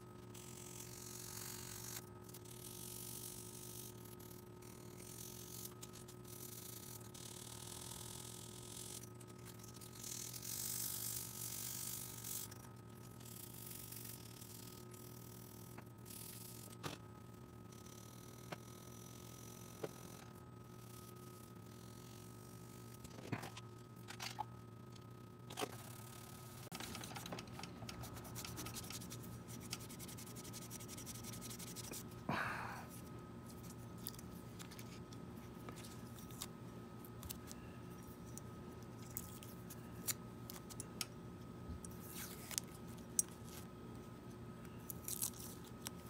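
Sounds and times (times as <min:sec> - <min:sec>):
masking tape crackling as peeled: 0:44.8 - 0:46.0.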